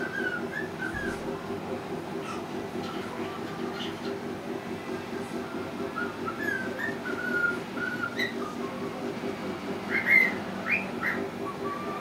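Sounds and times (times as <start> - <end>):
cockatiel whistling: 0.0 - 1.2, 6.0 - 8.6, 9.9 - 12.0.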